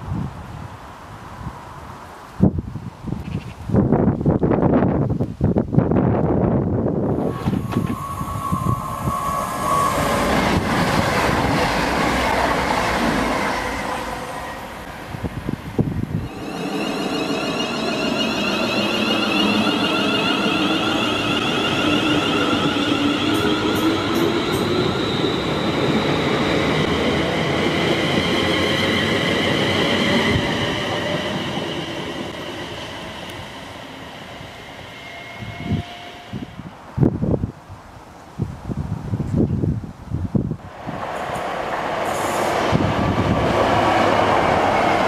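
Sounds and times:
train passing at speed: 5.9 - 37.4, 40.3 - 45.0
high whine: 7.0 - 12.7, 16.0 - 36.7.

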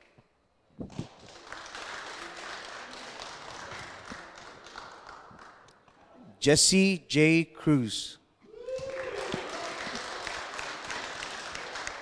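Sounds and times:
audience applauding: 1.0 - 5.7, 8.8 - 12.0.

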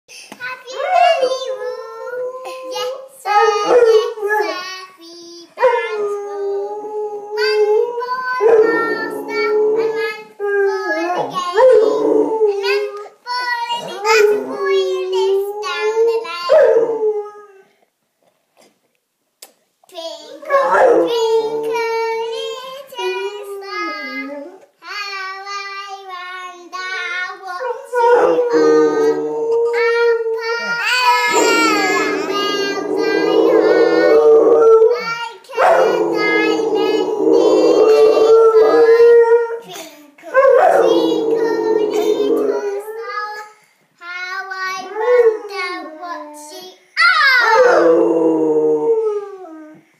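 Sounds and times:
girl singing: 0.4 - 6.5, 7.4 - 17.0, 19.9 - 34.2, 34.8 - 46.8
dog howling: 5.6 - 12.9, 27.6 - 39.6, 40.4 - 43.1, 47.0 - 49.8.

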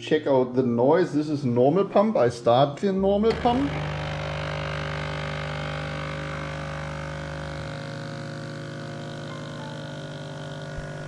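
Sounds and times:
misting pump droning hum: 0.9 - 11.0.

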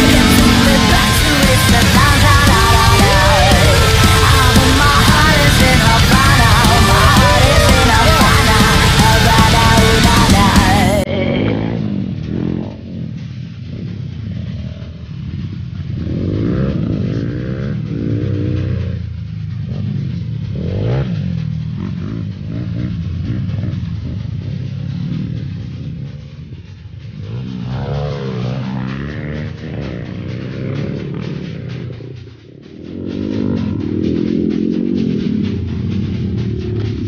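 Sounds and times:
dirt bike engine revving: 0.0 - 26.4, 27.1 - 32.2.

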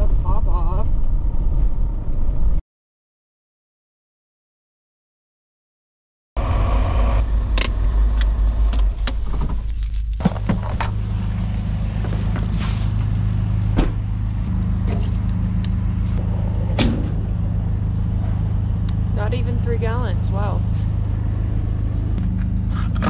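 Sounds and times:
engine idling: 7.2 - 23.0
car door clicks and jingles: 7.6 - 14.4.

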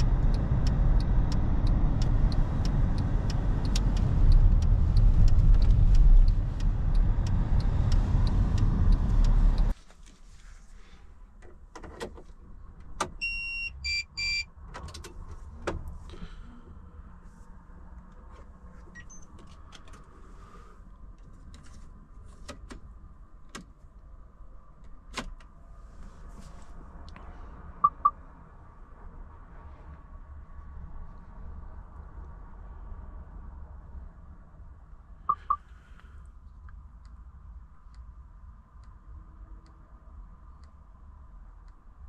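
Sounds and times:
steady low hum: 0.0 - 9.8
short loud beeps: 27.8 - 28.1, 35.3 - 35.6
two-part dashboard chime: 35.3 - 35.6.

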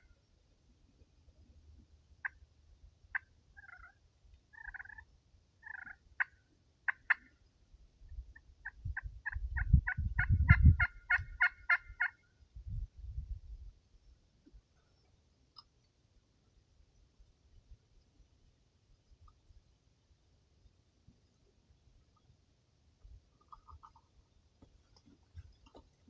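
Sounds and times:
turkey clucks and yelps: 3.1 - 5.0, 5.6 - 7.3, 8.3 - 12.2, 23.4 - 24.1.

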